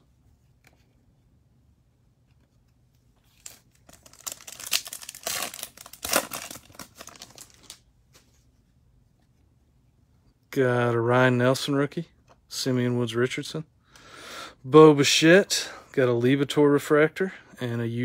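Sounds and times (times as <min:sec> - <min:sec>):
wrapper tearing and crinkling: 0:03.3 - 0:07.8.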